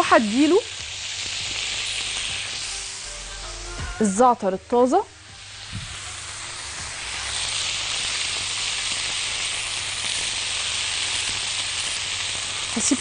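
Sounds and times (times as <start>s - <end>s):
meat and onions sizzling in a pan: 0.0s - 13.0s.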